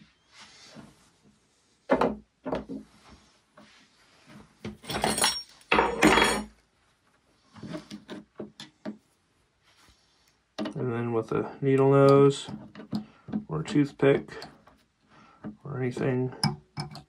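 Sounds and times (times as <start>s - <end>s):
sleeve rustling scrapes: 0.0s - 1.8s, 2.8s - 4.6s.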